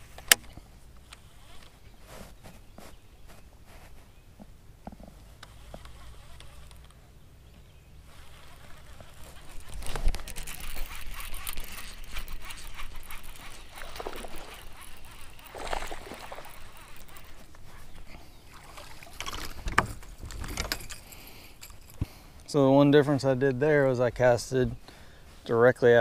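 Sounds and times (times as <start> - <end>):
fishing reel clicks and knocks: 5.4 - 7.0, 8.2 - 18.0
water lapping against hull: 8.1 - 19.8.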